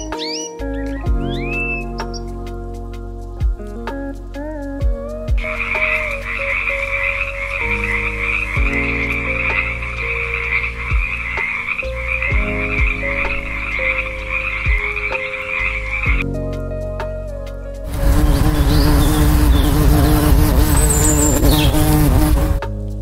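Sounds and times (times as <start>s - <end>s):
frogs croaking: 5.4s - 16.2s, 17.9s - 22.5s.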